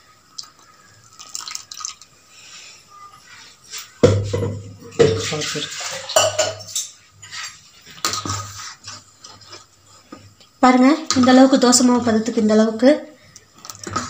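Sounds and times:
utensils clanking against steel bowl: 0:04.3 - 0:08.3.

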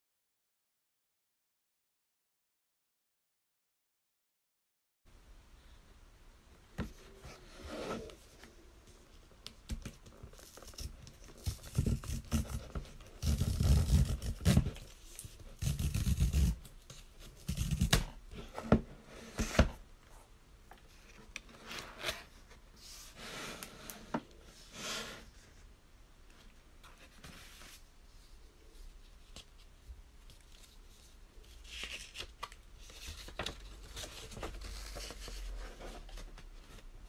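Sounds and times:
cardboard rubbing and scraping: 0:07.0 - 0:08.3, 0:10.4 - 0:19.8, 0:21.5 - 0:25.4.

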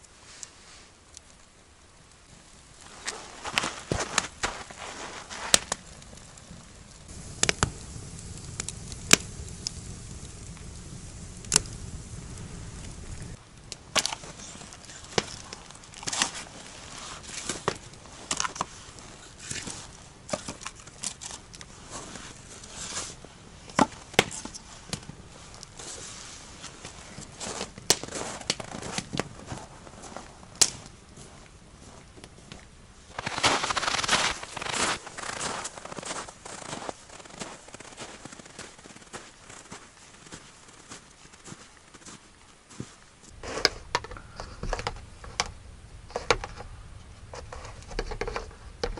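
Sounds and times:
campfire crackling: 0:00.0 - 0:48.9
footsteps crunching in snow: 0:02.8 - 0:13.4, 0:24.4 - 0:44.0
firewood knocking: 0:07.1 - 0:13.4.

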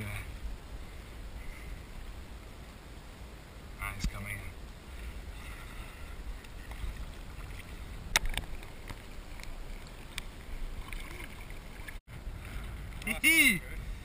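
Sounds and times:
wind rumbling on microphone: 0:00.0 - 0:14.0
water lapping in shallows: 0:04.5 - 0:14.0.

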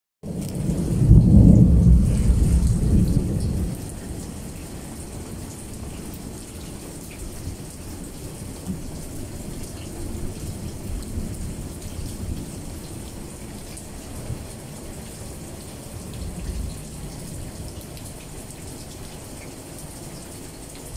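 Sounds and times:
thunder rumbling: 0:00.2 - 0:06.6
raindrops ticking: 0:00.2 - 0:20.9
steady rain: 0:00.2 - 0:20.9.

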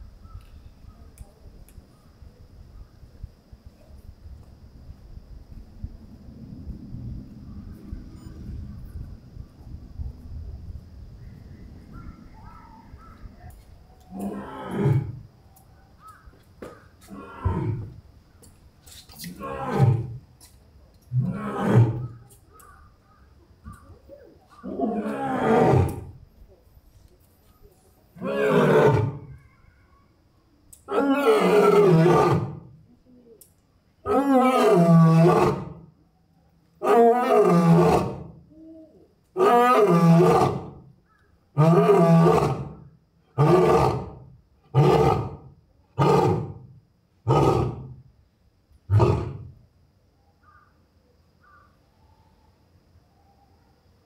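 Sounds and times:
lion roaring: 0:14.1 - 0:15.2, 0:21.1 - 0:22.2, 0:24.6 - 0:26.2, 0:28.2 - 0:29.4, 0:30.9 - 0:32.7, 0:34.0 - 0:35.8, 0:36.8 - 0:38.4, 0:39.4 - 0:40.8, 0:41.6 - 0:42.8, 0:43.4 - 0:48.0, 0:48.9 - 0:49.6
lion grunting roars: 0:21.2 - 0:22.2, 0:24.6 - 0:26.1, 0:39.4 - 0:40.8, 0:41.6 - 0:42.8, 0:43.4 - 0:46.6, 0:47.3 - 0:48.0, 0:48.9 - 0:49.6.

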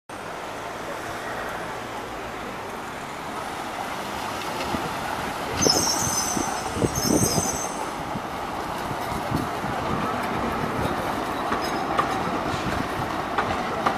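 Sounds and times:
city traffic hum: 0:00.1 - 0:13.9
tram wheels squealing: 0:04.2 - 0:09.4, 0:10.0 - 0:13.9
tram wheels knocking over crossings: 0:04.2 - 0:13.9.

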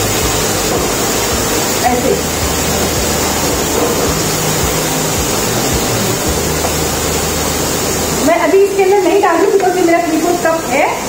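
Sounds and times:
steady hiss: 0:00.0 - 0:11.0.

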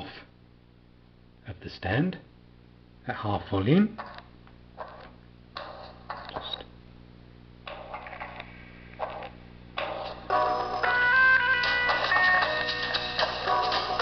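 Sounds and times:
music from phone speaker: 0:05.6 - 0:06.6, 0:07.7 - 0:14.0.

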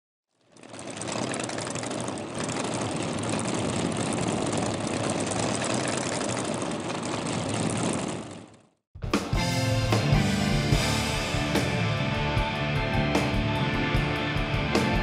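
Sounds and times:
engine running steadily: 0:00.4 - 0:08.8.

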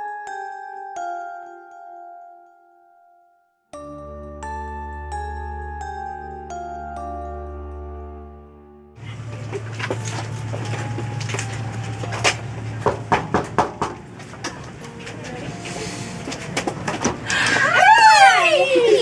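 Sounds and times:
tinkling glockenspiel music: 0:00.0 - 0:12.9
footsteps of a group walking: 0:09.0 - 0:17.8.

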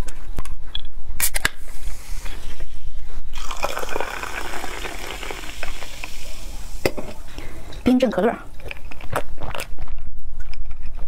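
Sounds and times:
cola poured over ice: 0:03.4 - 0:06.9.

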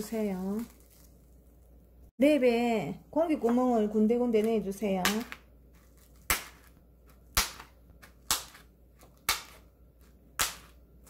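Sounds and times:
fork popping through plastic wrap: 0:00.0 - 0:01.4, 0:04.3 - 0:11.0.

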